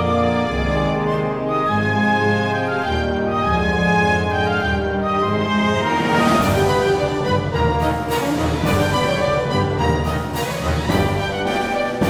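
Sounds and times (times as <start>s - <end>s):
instrumental theme music with beat: 2.8s - 12.0s.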